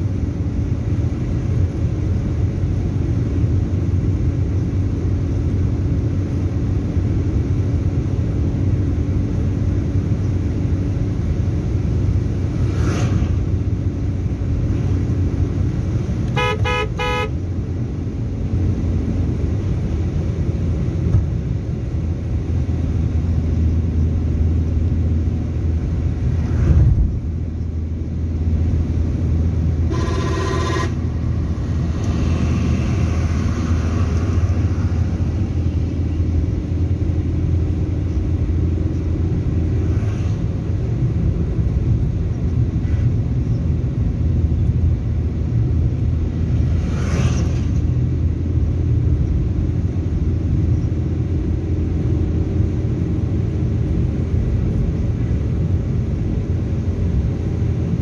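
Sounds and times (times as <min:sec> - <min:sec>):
engine and road rumble: 0:00.0 - 0:58.0
car horn: 0:16.3 - 0:17.4, 0:29.9 - 0:31.2.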